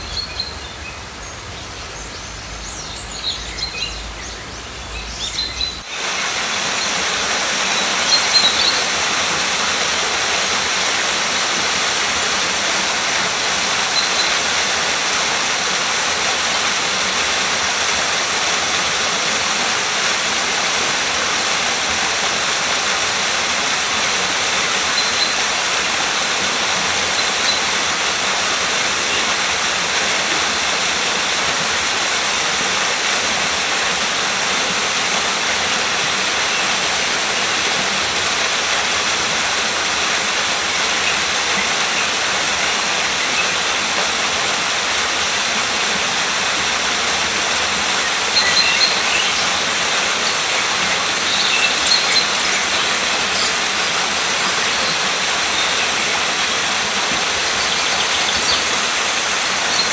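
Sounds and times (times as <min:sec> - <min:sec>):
water rushing: 0:00.0 - 0:59.9.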